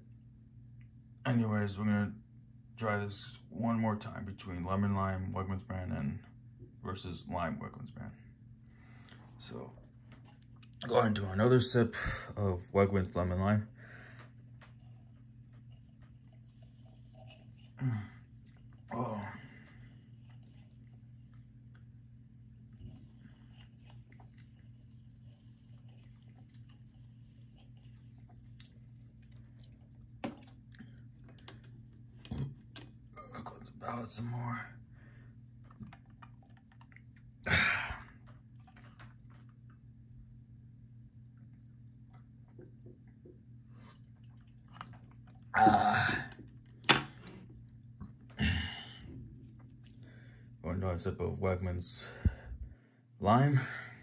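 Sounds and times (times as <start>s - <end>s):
steady low hum: 0.0s - 54.0s
faint chewing: 8.7s - 11.4s, 13.8s - 33.8s, 35.0s - 37.4s, 38.0s - 40.4s, 41.2s - 45.6s, 46.3s - 50.5s.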